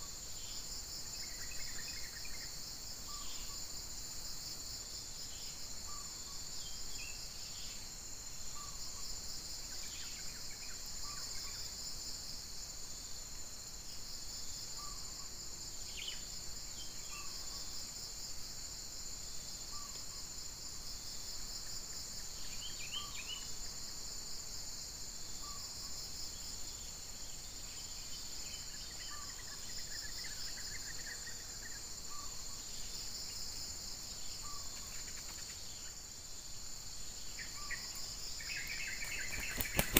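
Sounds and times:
high-pitched insect chorus trilling: 0:00.0 - 0:39.9
scattered chirps: 0:38.7 - 0:39.9.

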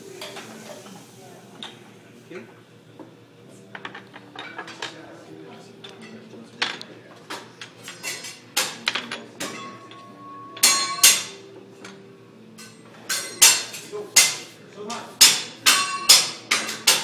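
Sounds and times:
metal utensils clacking on griddle: 0:07.7 - 0:12.0, 0:12.6 - 0:14.5, 0:15.2 - 0:17.0
metallic ring: 0:09.4 - 0:11.4.

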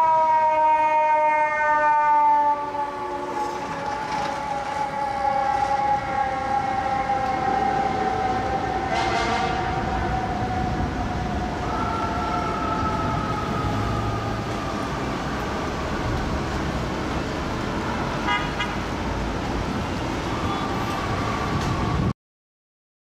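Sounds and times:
city traffic rumble: 0:00.0 - 0:22.2
fire truck horn tone: 0:08.9 - 0:09.9, 0:18.2 - 0:18.9.

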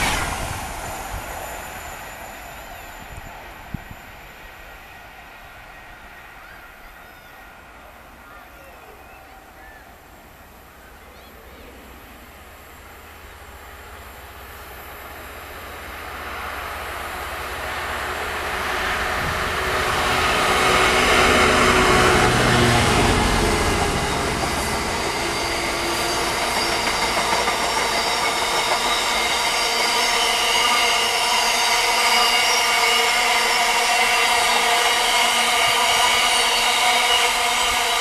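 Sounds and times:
diesel locomotive engine: 0:00.0 - 0:38.0
wheel-on-rail noise: 0:00.0 - 0:38.0
high ringing: 0:23.4 - 0:38.0.

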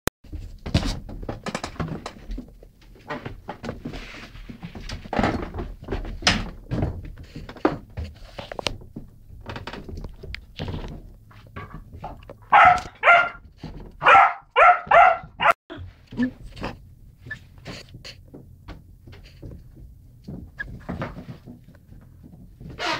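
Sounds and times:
light bumps and knocks: 0:00.3 - 0:15.1, 0:15.8 - 0:22.8
puppy barking: 0:12.4 - 0:13.4, 0:14.0 - 0:15.6.

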